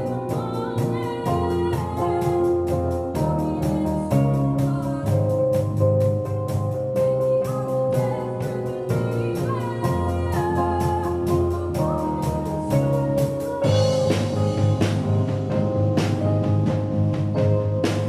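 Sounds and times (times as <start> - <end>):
girl singing into microphone: 0.0 - 5.9, 7.0 - 15.0
bass guitar: 0.0 - 18.0
drum kit beat: 0.0 - 18.0.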